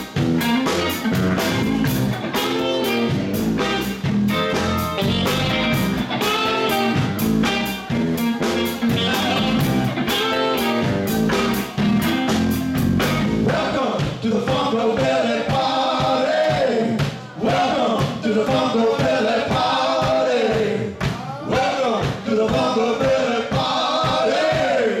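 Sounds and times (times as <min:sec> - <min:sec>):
sliding lead melody: 0:00.0 - 0:13.5
electric guitar: 0:00.0 - 0:13.7
drum kit beat: 0:00.0 - 0:25.0.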